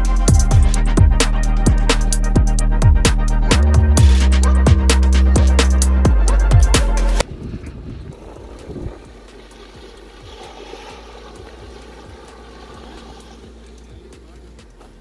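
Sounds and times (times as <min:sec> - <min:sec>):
electronic music with heavy beat: 0:00.0 - 0:07.2, 0:08.3 - 0:15.0
wind on microphone: 0:07.2 - 0:10.3
car rolling through puddle: 0:07.2 - 0:15.0.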